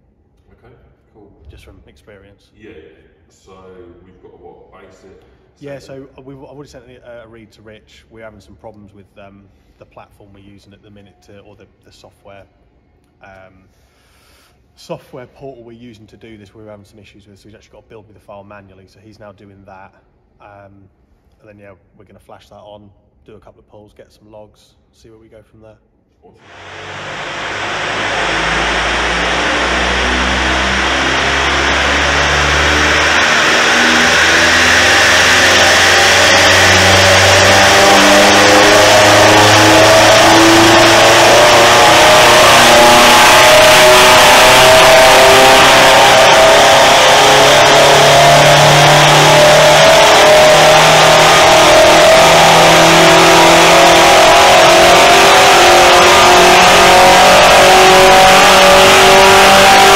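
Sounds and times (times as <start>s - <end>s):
car engine running under load: 26.4s - 59.9s.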